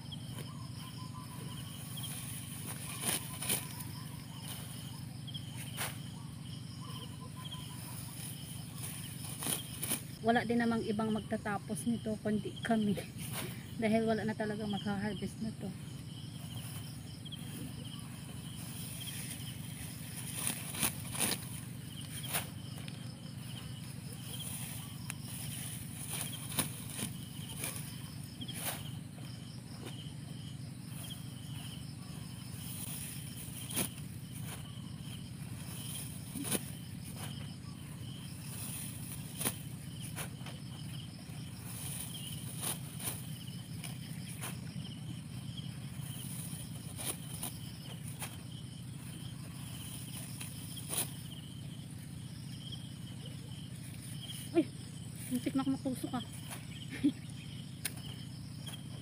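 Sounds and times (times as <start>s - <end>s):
insects chirping: 0.0s - 59.0s
sickle cutting stalks: 0.3s - 6.2s, 6.9s - 10.2s, 16.5s - 30.0s, 30.8s - 51.5s, 57.8s - 59.0s.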